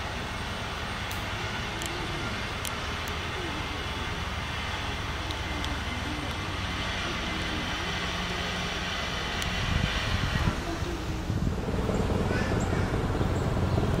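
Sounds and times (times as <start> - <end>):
jet airplane rumble: 0.0 - 14.0
faint distant voices: 1.2 - 14.0.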